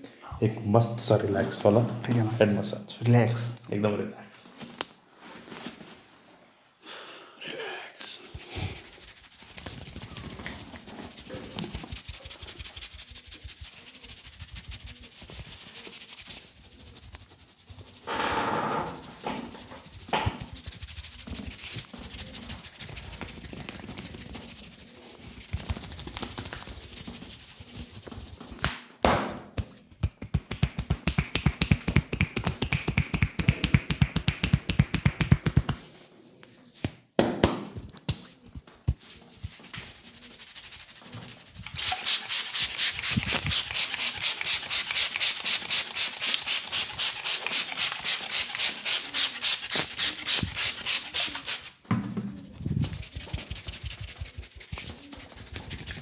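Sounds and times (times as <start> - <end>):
fingers rubbing hair and scalp: 8.2 - 28.7, 38.1 - 51.8, 52.4 - 56.0
fast rhythmic taps on head: 8.3 - 18.0, 19.1 - 35.8, 38.9 - 51.5, 52.8 - 56.0.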